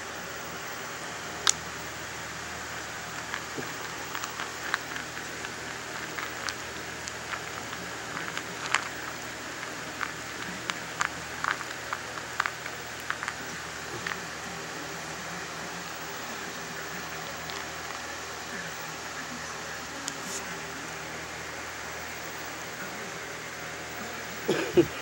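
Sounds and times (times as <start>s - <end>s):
steady hiss: 0.0s - 25.0s
puppy crunching kibble: 1.3s - 18.5s
kibble clicking in plastic bowl: 2.8s - 14.4s, 16.5s - 18.1s.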